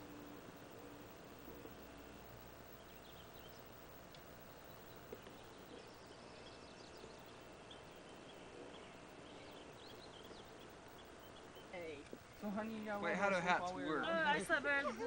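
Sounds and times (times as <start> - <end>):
faint bird chirps: 0.0 - 12.0
steady hiss: 0.0 - 15.0.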